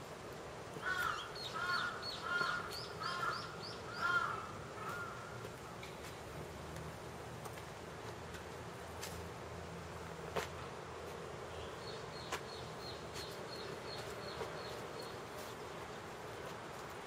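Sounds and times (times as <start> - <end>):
steady woodland hiss: 0.0 - 17.0.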